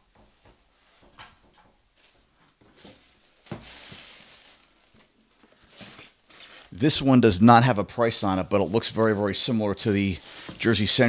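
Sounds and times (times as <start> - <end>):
plastic wrap rustling: 2.0 - 6.8, 8.6 - 11.0.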